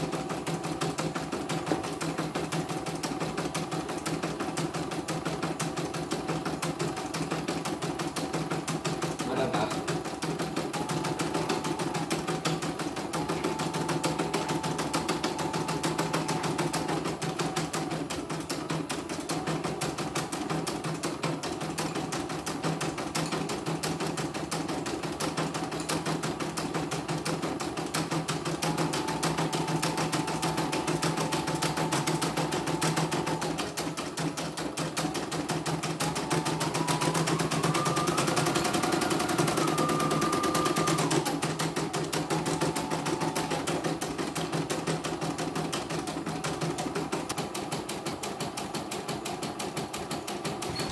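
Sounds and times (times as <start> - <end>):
embroidery machine stitching: 0.0 - 50.9
high machine whine: 35.8 - 41.6.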